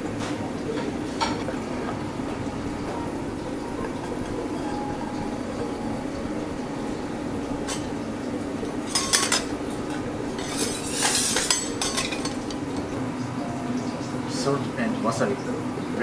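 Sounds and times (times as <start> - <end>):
low hum: 0.0 - 14.3
plates and utensils clinking: 0.2 - 13.0.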